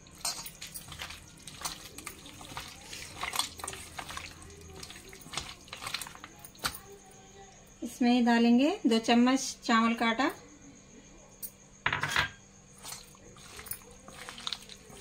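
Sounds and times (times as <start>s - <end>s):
hand squelching wet marinade: 0.0s - 7.0s, 12.8s - 15.0s.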